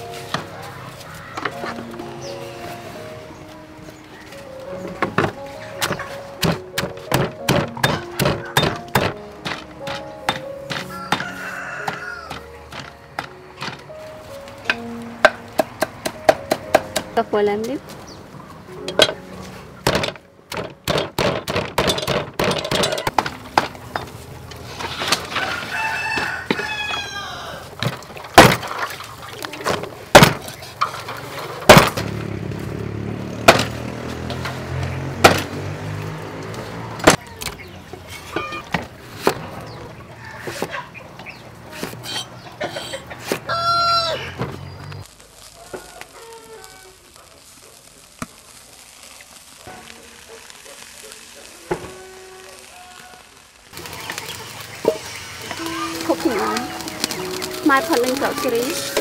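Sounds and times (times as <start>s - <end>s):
cleaver chopping on wooden board: 5.8s - 9.2s
pestle pounding in stone mortar: 6.4s - 11.2s, 19.9s - 23.7s
rooster crowing: 10.8s - 12.5s, 25.0s - 27.8s, 40.1s - 40.9s, 42.6s - 44.5s, 45.5s - 47.2s.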